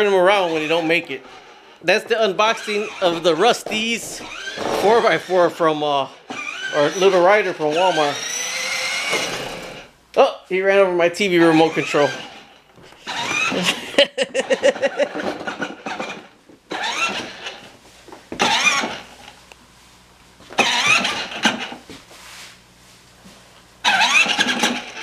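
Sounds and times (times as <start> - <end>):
small electric motor hum: 4.2 - 5.4, 6.2 - 9.9, 11.5 - 13.8, 14.4 - 17.7, 18.4 - 19.4, 23.8 - 25.0
man laughing: 13.5 - 15.6.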